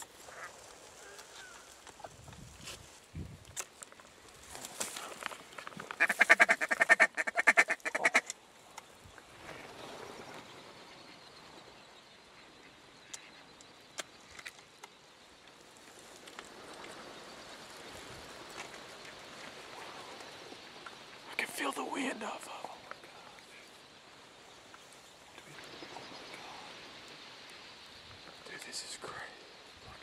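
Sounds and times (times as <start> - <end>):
ducks quacking: 6.0 - 8.3
faint hiss: 8.2 - 30.0.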